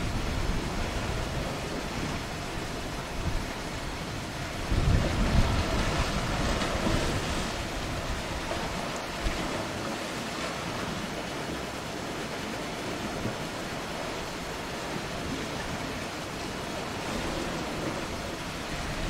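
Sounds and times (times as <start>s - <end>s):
wind buffeting microphone: 0.0s - 9.6s, 14.3s - 19.0s
surf breaking on rocks: 4.6s - 11.6s.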